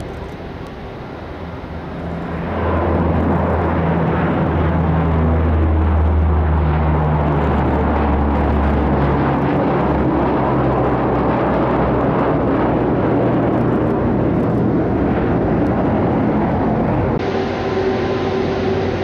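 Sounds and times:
jet engines humming: 0:00.0 - 0:19.0
turboprop engines droning: 0:00.0 - 0:19.0.

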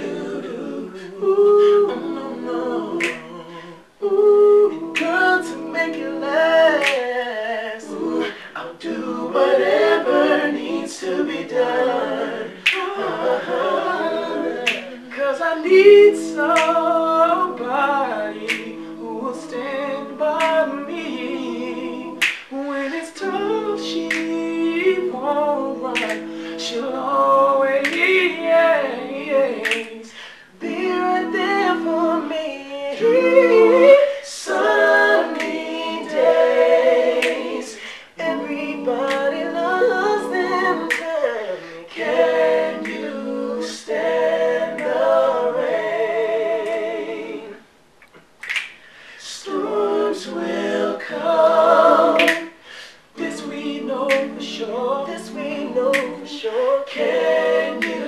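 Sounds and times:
male vocal group singing in harmony: 0:00.0 - 0:47.7, 0:48.8 - 0:58.0
finger snaps: 0:03.0 - 0:03.4, 0:04.9 - 0:05.3, 0:06.8 - 0:07.1, 0:12.6 - 0:12.9, 0:14.6 - 0:15.0, 0:16.4 - 0:16.8, 0:18.4 - 0:18.9, 0:20.3 - 0:20.8, 0:22.2 - 0:22.6, 0:23.9 - 0:24.5, 0:25.9 - 0:26.5, 0:27.8 - 0:28.2, 0:29.6 - 0:30.3, 0:37.2 - 0:38.0, 0:40.9 - 0:41.1, 0:42.8 - 0:43.2, 0:48.0 - 0:49.0, 0:52.2 - 0:52.8, 0:54.1 - 0:54.3, 0:55.9 - 0:56.2, 0:57.8 - 0:58.0.

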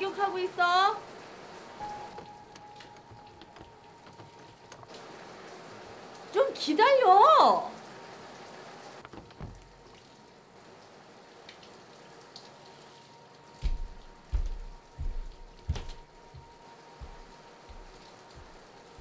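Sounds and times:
shower water hiss: 0:00.0 - 0:19.0
heavy footsteps on floor: 0:13.6 - 0:19.0.

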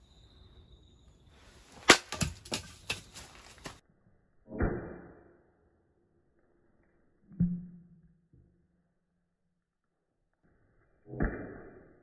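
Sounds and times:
dry leaves crunching underfoot: 0:01.5 - 0:03.8
hatchet thud into log: 0:01.8 - 0:03.0.

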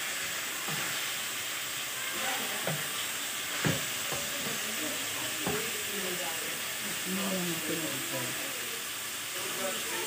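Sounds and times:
chicken sizzling in oil: 0:00.0 - 0:10.0
spatula knocking and scraping pan: 0:02.6 - 0:05.8.

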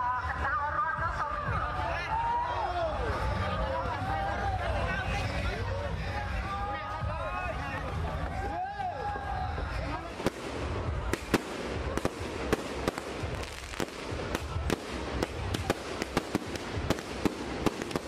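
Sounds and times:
firework cracks: 0:10.0 - 0:18.0.

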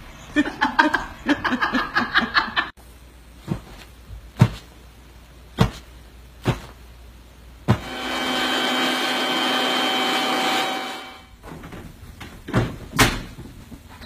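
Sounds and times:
person laughing: 0:00.3 - 0:02.7
dull thumps: 0:03.4 - 0:04.8, 0:05.5 - 0:06.9.

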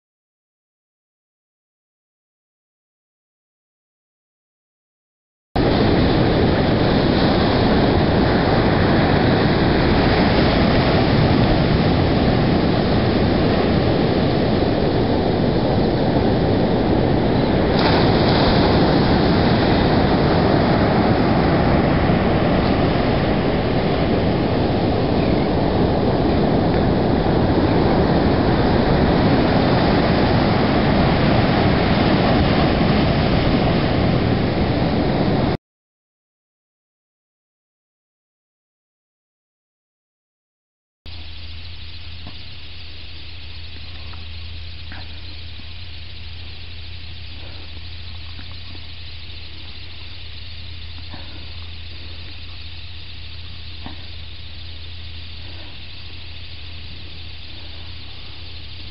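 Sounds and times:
surf breaking on beach: 0:05.6 - 0:35.6.

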